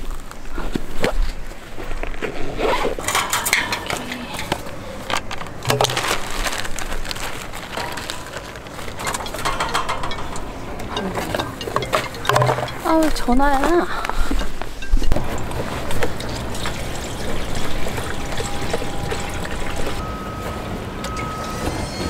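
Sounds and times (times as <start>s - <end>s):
plastic bag rustling and crinkling: 0.0s - 20.0s
handling scrapes and knocks: 2.0s - 19.1s.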